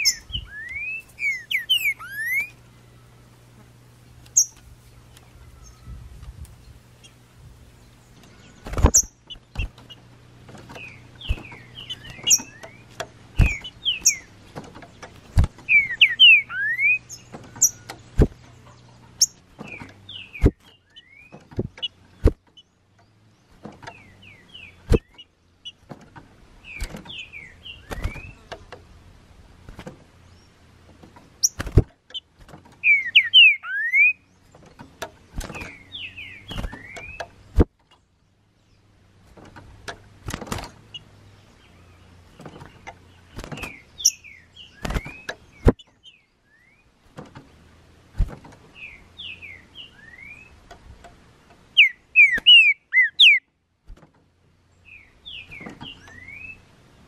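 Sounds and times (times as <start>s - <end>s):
bird whistling song: 0.0s - 3.0s, 4.4s - 4.6s, 10.8s - 14.3s, 15.6s - 17.9s, 19.2s - 22.0s, 26.6s - 28.4s, 32.8s - 34.3s, 35.5s - 37.3s, 43.4s - 46.9s, 48.8s - 50.6s, 51.7s - 53.5s, 54.8s - 56.7s.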